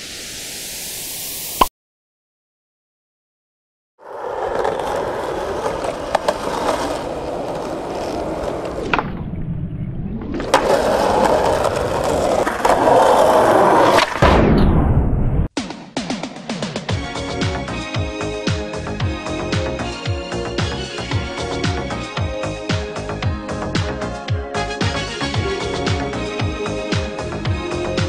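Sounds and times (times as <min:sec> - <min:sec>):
skateboard wheels rolling on concrete: 0:04.0 - 0:14.2, 0:17.0 - 0:28.0
skateboard landing clack: 0:04.3 - 0:09.3, 0:10.3 - 0:14.6.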